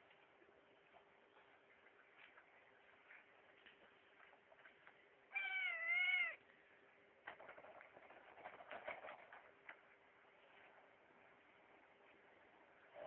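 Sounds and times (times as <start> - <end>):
scattered clicks and rustles: 7.2 - 12.2.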